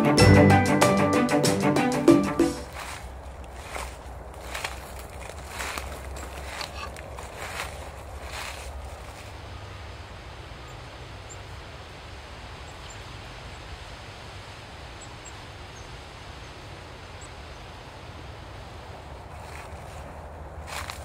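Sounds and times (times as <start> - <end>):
step crunching dry leaves: 2.6 - 9.6, 19.2 - 21.0
steady wind: 2.6 - 21.0.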